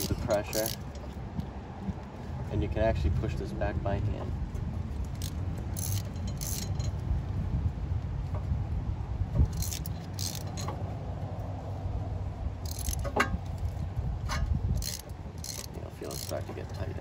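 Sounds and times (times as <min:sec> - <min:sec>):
metallic clinks of hand tools: 0:00.0 - 0:01.2, 0:05.2 - 0:07.0
steady low rumble: 0:00.0 - 0:17.0.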